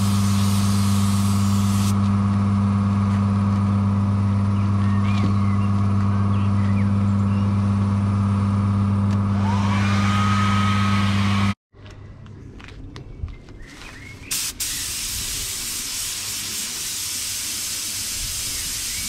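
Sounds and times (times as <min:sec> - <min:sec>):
paint spray gun hissing: 0:00.0 - 0:02.0, 0:14.3 - 0:19.0
machine hum: 0:00.0 - 0:11.6.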